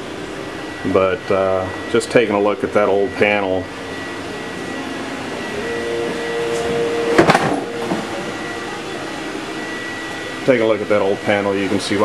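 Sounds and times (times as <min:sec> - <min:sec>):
high steady whine: 0:00.0 - 0:12.0
machinery hum and hiss: 0:00.0 - 0:12.0.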